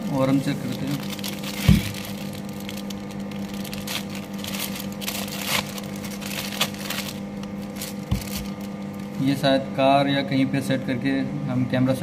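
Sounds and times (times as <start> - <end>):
plastic bag crinkling: 0.1 - 9.2.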